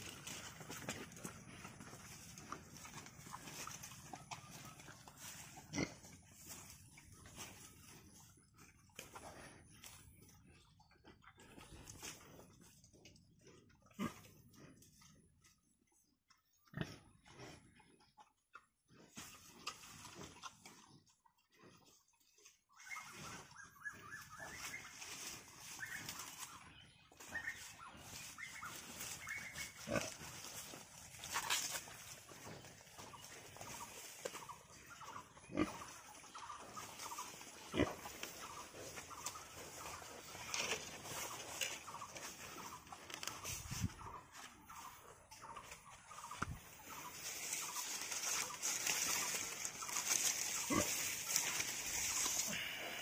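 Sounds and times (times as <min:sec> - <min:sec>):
pig chewing corn stalks: 0:00.0 - 0:53.0
leaves crackling and rustling: 0:24.4 - 0:26.6, 0:27.3 - 0:32.6, 0:46.2 - 0:53.0.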